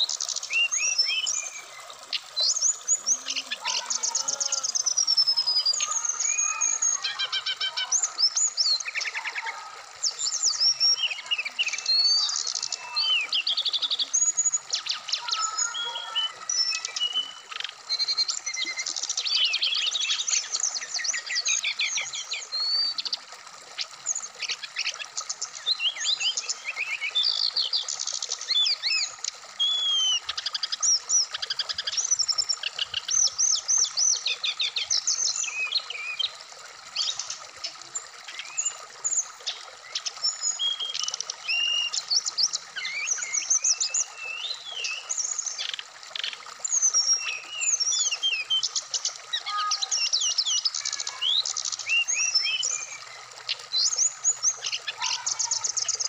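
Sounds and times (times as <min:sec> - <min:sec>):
bird singing chirps and trills: 0:00.0 - 0:56.0
stream running: 0:00.0 - 0:56.0.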